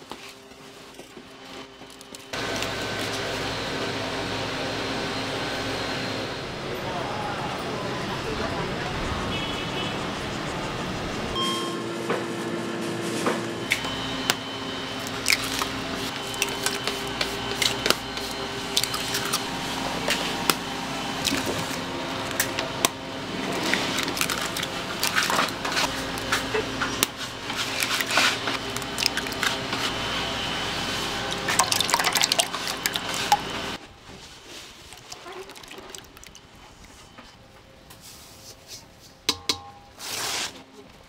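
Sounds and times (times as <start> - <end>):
dough squishing: 23.3 - 30.0.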